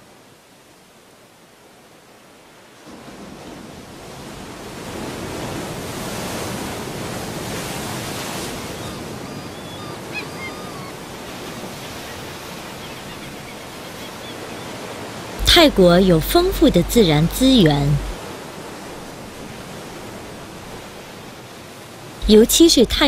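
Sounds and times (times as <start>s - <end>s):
surf washing onto beach: 2.8s - 8.7s.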